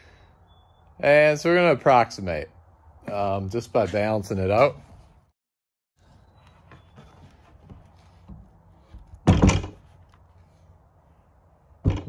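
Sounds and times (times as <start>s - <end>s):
wooden carving thunk on bench: 9.2s - 9.8s.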